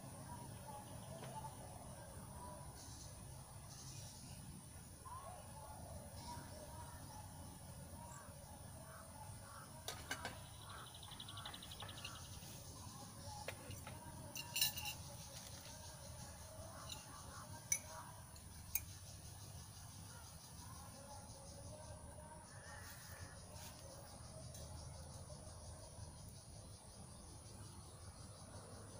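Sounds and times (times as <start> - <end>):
faint high insect drone: 0.0 - 28.9
spoon and lid clinking on metal pots: 13.5 - 15.1.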